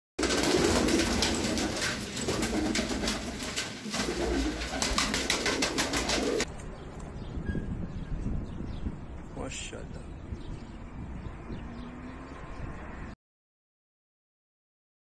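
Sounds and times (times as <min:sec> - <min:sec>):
pigeons cooing: 0:00.2 - 0:06.5.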